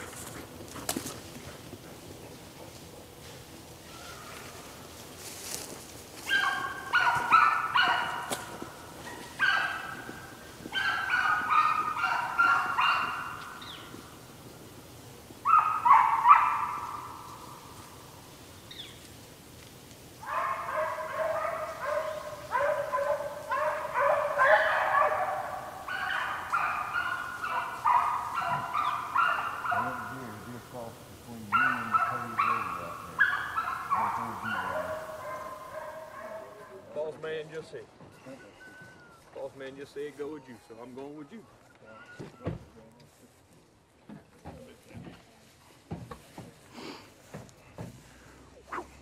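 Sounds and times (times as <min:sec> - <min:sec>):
hounds barking and baying: 0:00.0 - 0:19.2, 0:20.2 - 0:37.1, 0:48.6 - 0:49.0.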